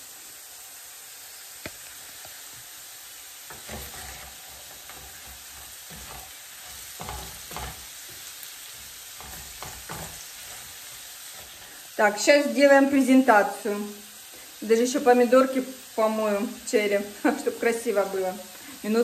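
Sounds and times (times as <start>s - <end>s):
potatoes sizzling in a skillet: 0.0s - 19.0s
utensil scraping the pan: 3.5s - 11.8s.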